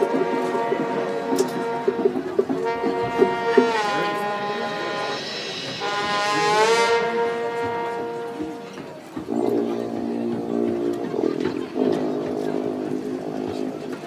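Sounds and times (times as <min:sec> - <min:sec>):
percussion taps: 0:00.0 - 0:04.2
brass sustained chords: 0:00.0 - 0:14.0.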